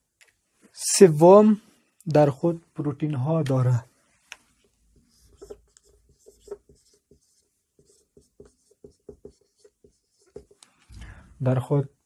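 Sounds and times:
marker pen writing on whiteboard: 0:04.2 - 0:10.9.

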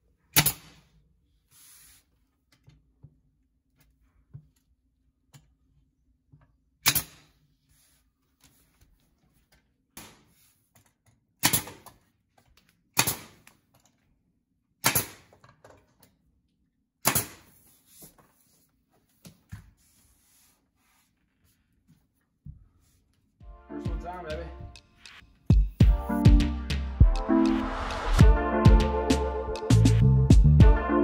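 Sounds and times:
pneumatic stapler shots: 0:00.4 - 0:00.8, 0:06.8 - 0:07.3, 0:11.4 - 0:11.9, 0:13.0 - 0:13.5, 0:14.8 - 0:15.3, 0:17.0 - 0:17.6.

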